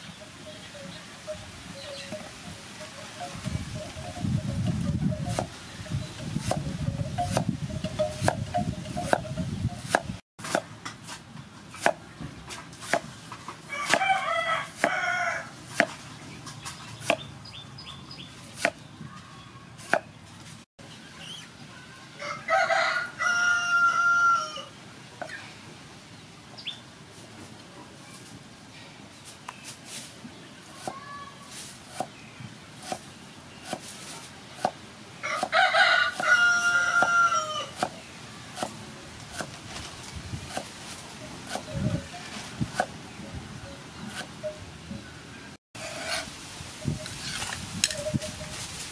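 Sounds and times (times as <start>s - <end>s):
cleaver chopping on wooden board: 9.9s - 11.2s, 11.8s - 12.0s, 12.8s - 13.1s, 14.7s - 15.0s, 15.7s - 16.0s, 17.0s - 17.2s, 18.6s - 18.8s, 19.8s - 20.1s, 31.9s - 32.2s, 32.8s - 33.0s, 33.6s - 33.9s, 34.6s - 34.8s, 38.6s - 39.5s, 40.5s - 40.7s
rooster crowing: 13.7s - 15.6s, 22.2s - 24.7s, 35.2s - 37.8s.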